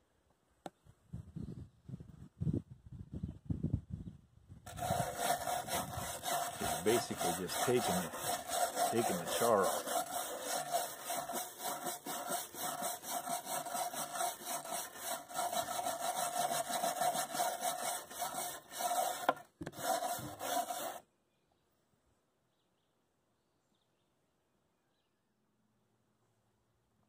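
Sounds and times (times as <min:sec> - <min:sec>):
wire brush scrubbing wood: 0:04.7 - 0:21.0.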